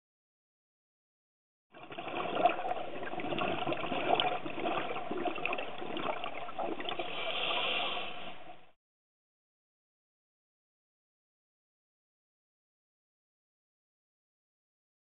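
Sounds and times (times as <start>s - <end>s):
muffled underwater rush: 1.8s - 8.8s.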